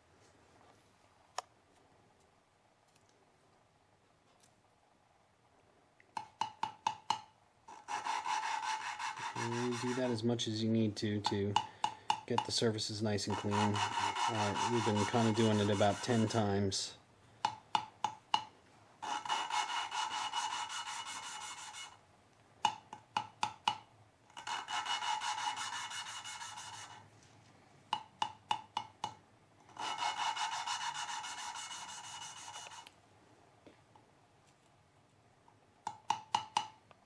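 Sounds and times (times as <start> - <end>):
valve grinding gritty rasp: 7.7 - 10.2, 13.2 - 16.5, 19.0 - 22.0, 24.3 - 27.0, 29.7 - 32.9.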